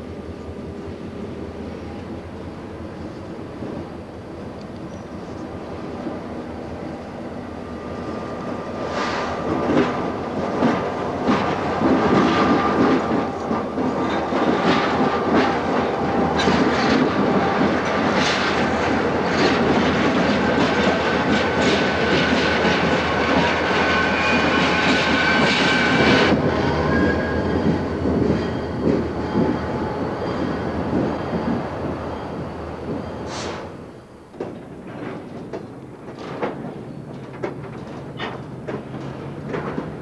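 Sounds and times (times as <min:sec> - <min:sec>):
diesel locomotive engine rumble: 0:00.0 - 0:40.0
wheels clacking over rail joints: 0:09.0 - 0:26.5, 0:34.3 - 0:40.0.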